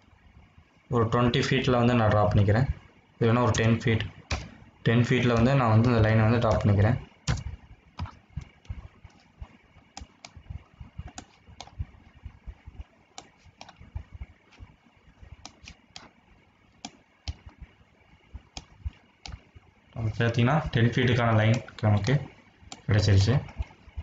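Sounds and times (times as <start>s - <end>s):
keyboard and mouse clicks: 4.3s - 4.6s, 5.3s - 6.7s, 7.3s - 11.8s, 13.2s - 14.7s, 15.4s - 16.2s, 16.8s - 17.7s, 18.4s - 19.4s.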